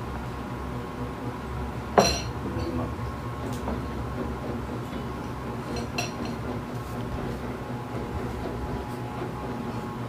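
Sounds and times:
glass bowl clinking: 0:02.0 - 0:02.3.

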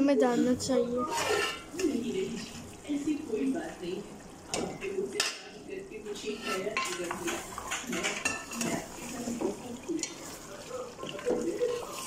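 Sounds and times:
spatula scraping a metal pot: 0:01.0 - 0:02.2, 0:06.2 - 0:09.3.

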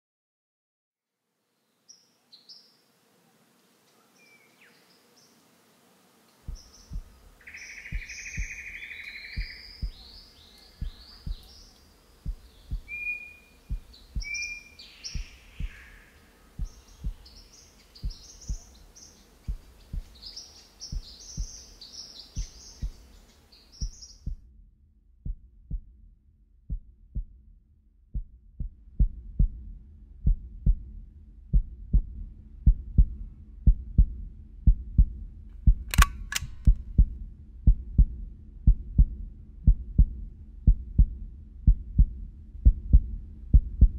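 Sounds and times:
heartbeat thuds: 0:06.5 - 0:07.3, 0:07.9 - 0:08.8, 0:09.4 - 0:10.2, 0:10.8 - 0:11.6, 0:12.2 - 0:13.1, 0:13.7 - 0:16.0, 0:16.6 - 0:17.4, 0:18.0 - 0:18.8, 0:19.5 - 0:20.2, 0:20.9 - 0:21.7, 0:22.4 - 0:23.1, 0:23.8 - 0:24.5, 0:25.2 - 0:26.0, 0:26.7 - 0:27.4, 0:28.1 - 0:43.9
birds chirping: 0:06.5 - 0:24.3.

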